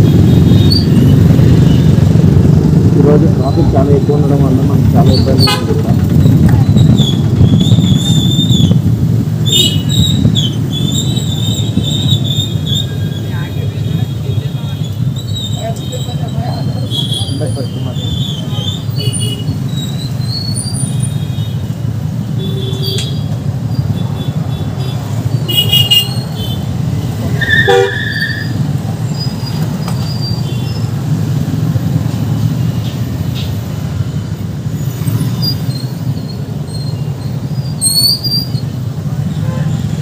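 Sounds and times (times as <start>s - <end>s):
heavy traffic rumble: 0.0s - 40.0s
vehicle horn toots: 5.4s - 5.8s, 22.4s - 23.3s, 23.9s - 26.6s, 27.4s - 28.5s.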